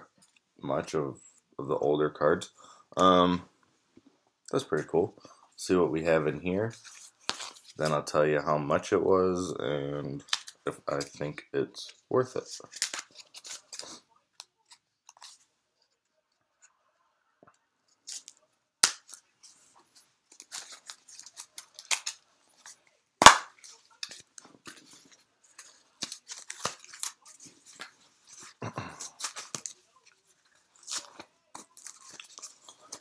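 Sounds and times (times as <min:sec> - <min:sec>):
paper wrapping tearing and crinkling: 0:12.6 - 0:14.0, 0:20.3 - 0:33.0.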